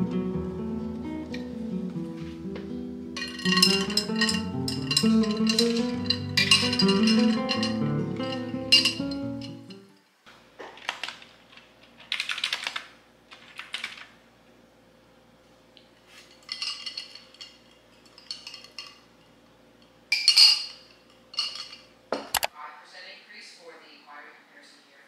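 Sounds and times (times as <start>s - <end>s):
ice clinking against glass jar: 3.2s - 9.6s, 16.4s - 19.0s, 20.1s - 21.9s
computer keyboard typing: 10.8s - 14.1s.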